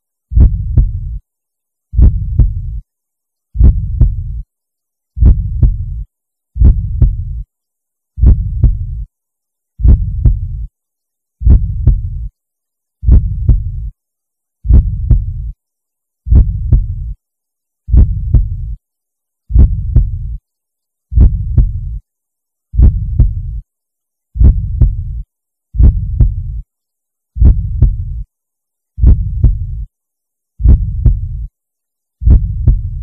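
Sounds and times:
heartbeat: 0.3 - 1.2, 1.9 - 2.8, 3.6 - 4.4, 5.2 - 6.0, 6.6 - 7.4, 8.2 - 9.1, 9.8 - 10.7, 11.4 - 12.3, 13.0 - 13.9, 14.6 - 15.6, 16.3 - 17.2, 17.9 - 18.8, 19.5 - 20.4, 21.1 - 22.0, 22.8 - 23.6, 24.4 - 25.2, 25.8 - 26.6, 27.4 - 28.2, 29.0 - 29.9, 30.6 - 31.5, 32.2 - 33.0.

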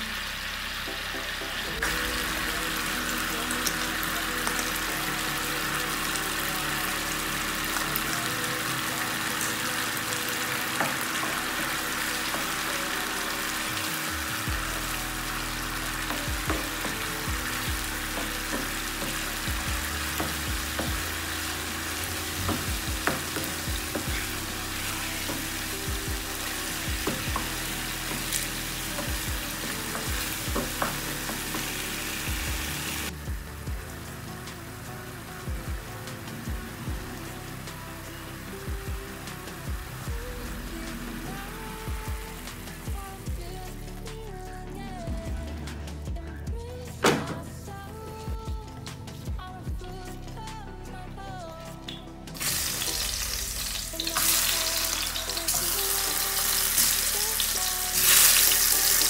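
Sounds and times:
sauce sizzling in frying pan: 0.0 - 33.2, 52.4 - 59.0.

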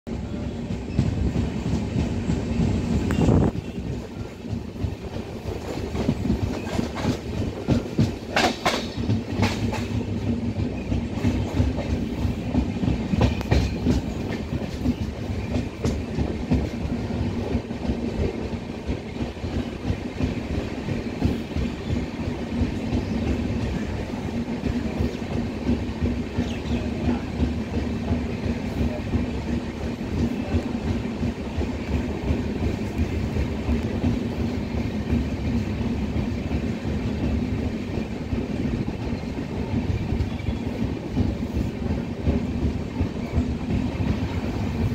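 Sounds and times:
train rumble: 0.1 - 44.9
wheels clacking over rail joints: 0.7 - 44.9.

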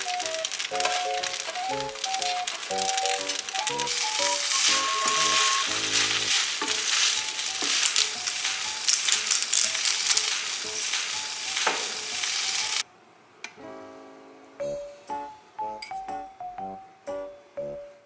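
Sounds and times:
noodles sizzling in a frying pan: 0.0 - 12.8.

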